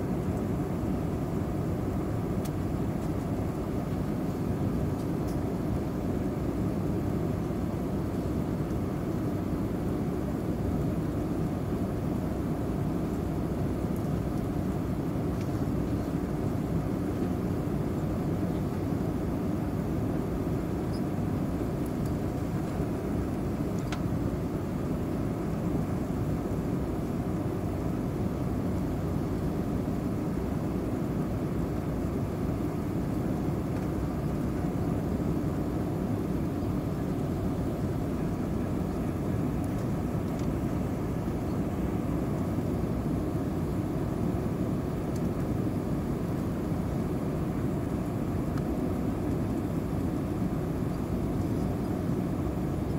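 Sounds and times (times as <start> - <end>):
low rumble of jet engines: 0.0 - 52.9.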